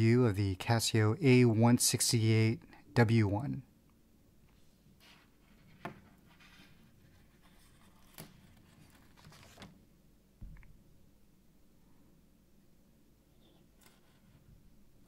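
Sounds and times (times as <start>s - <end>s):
low thump: 10.4s - 10.8s.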